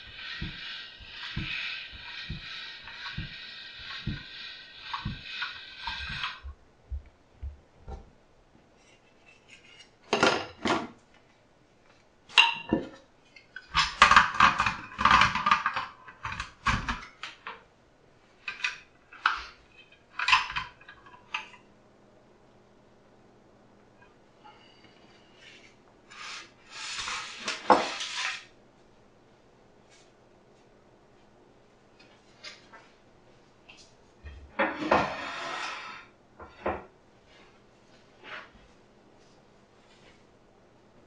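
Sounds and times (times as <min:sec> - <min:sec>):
pasta machine whirring and knocking: 0:00.0 - 0:07.7.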